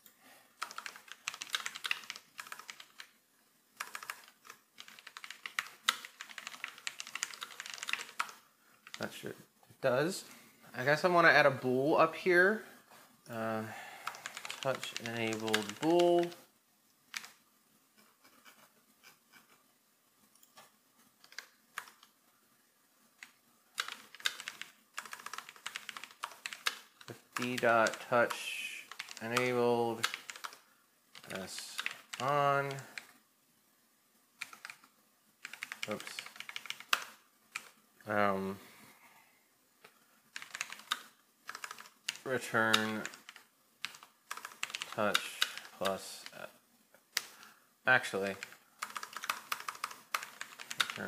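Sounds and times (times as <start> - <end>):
keyboard typing clicks: 3.8 - 9.0, 14.0 - 16.4, 21.2 - 22.1, 23.2 - 28.0, 40.4 - 46.0, 48.3 - 51.0.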